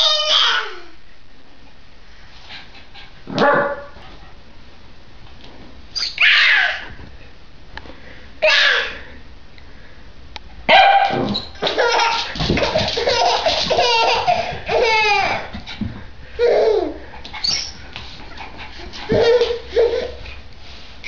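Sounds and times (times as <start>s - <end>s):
baby laughing: 11.6s - 15.6s, 16.4s - 17.7s, 18.8s - 20.3s.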